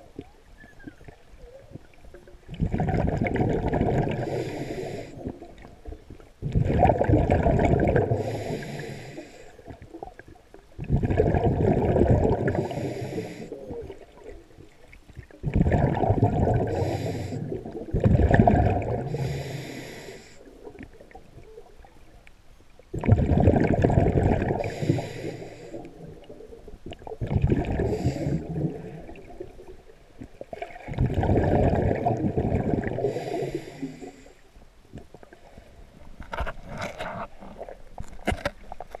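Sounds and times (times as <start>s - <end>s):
gurgling bubbles: 0.0s - 22.0s, 22.9s - 34.2s
diver breathing through regulator: 4.1s - 5.3s, 8.0s - 9.7s, 12.4s - 13.7s, 16.5s - 17.7s, 18.9s - 20.5s, 24.5s - 26.0s, 27.7s - 29.0s, 32.8s - 34.5s.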